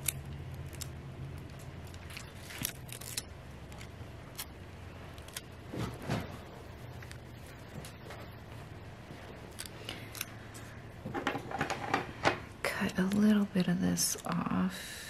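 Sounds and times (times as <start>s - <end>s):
sticker peeling crinkles: 0.0s - 5.5s
steady low hum: 0.0s - 15.0s.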